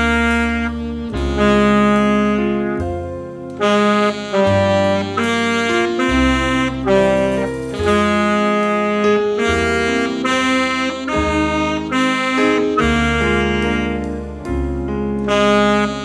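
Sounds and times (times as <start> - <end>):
alto saxophone melody: 0.0 - 16.0
recorded accompaniment with bass line: 0.0 - 16.0.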